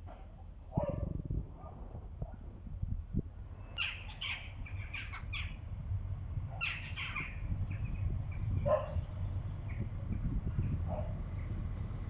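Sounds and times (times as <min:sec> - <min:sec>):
distant train rumble: 0:00.0 - 0:12.0
harsh bird calls: 0:03.6 - 0:05.7, 0:06.5 - 0:10.3.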